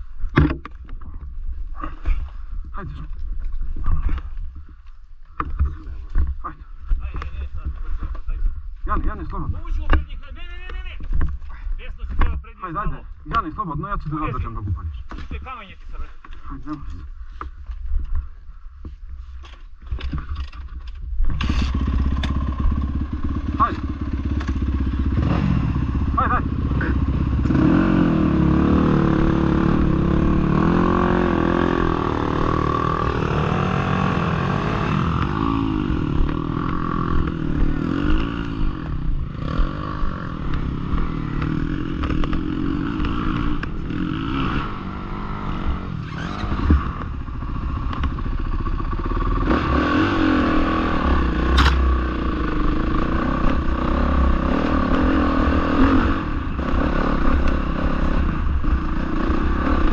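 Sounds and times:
dirt bike engine revving: 0:21.3 - 0:59.9.

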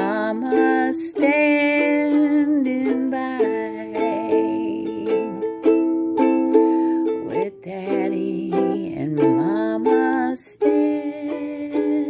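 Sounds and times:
ukulele strumming chords: 0:00.0 - 0:12.0.

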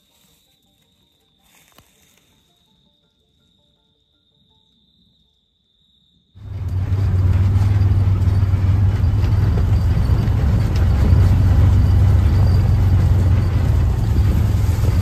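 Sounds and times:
wind and ground noise: 0:05.8 - 0:15.0
loud deep rumble: 0:06.4 - 0:15.0
vehicle engine running: 0:06.4 - 0:15.0.

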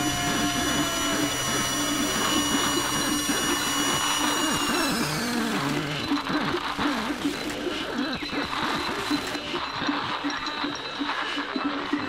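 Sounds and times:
high tones sliding down: 0:00.0 - 0:06.2
warbling low electronic tones: 0:00.0 - 0:07.3.

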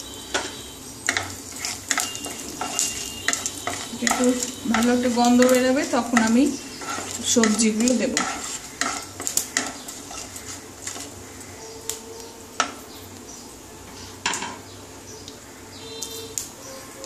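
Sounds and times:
spices sizzling in oil: 0:00.0 - 0:17.0
wooden spatula scraping a pan: 0:00.4 - 0:11.8.

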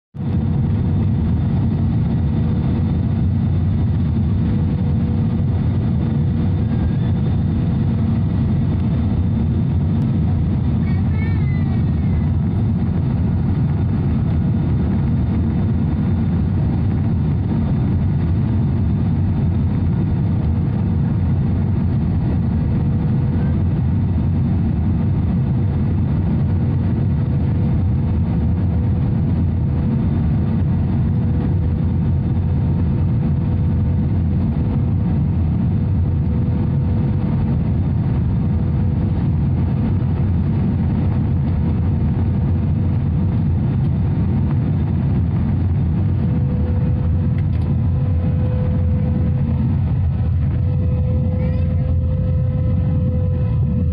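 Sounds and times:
faint steady whine: 0:00.2 - 0:53.9
jet engines rumbling: 0:00.2 - 0:53.9
rushing air: 0:33.9 - 0:53.9.

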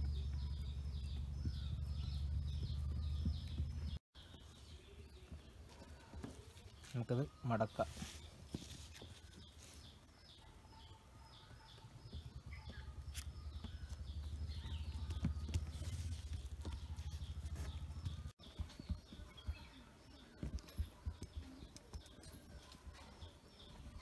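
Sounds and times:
low rumble: 0:00.0 - 0:04.0
small bird chirping: 0:00.0 - 0:24.0.

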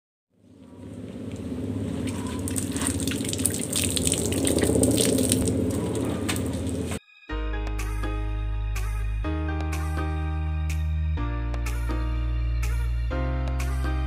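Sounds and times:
tap water splashing on ground: 0:02.0 - 0:07.0.

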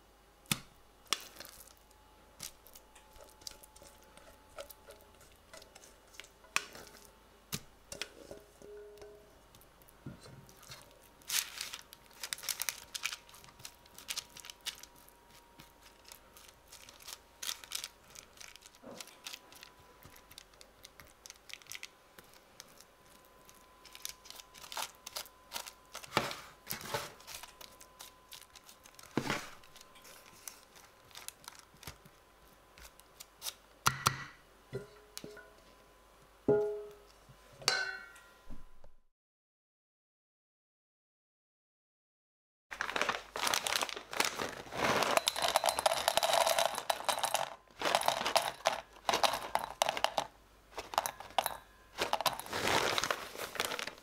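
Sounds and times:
baking paper crinkling: 0:01.1 - 0:07.2, 0:10.4 - 0:33.8, 0:42.7 - 0:54.0
metal spatula scraping and tapping: 0:03.0 - 0:07.0
nuts clattering into steel bowl: 0:44.7 - 0:54.0.

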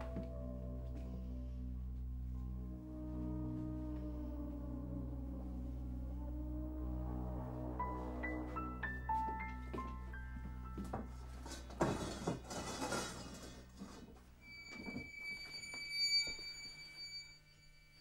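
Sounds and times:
thin high sustained tone: 0:00.0 - 0:11.6
noisy rushing swell: 0:05.4 - 0:09.7.

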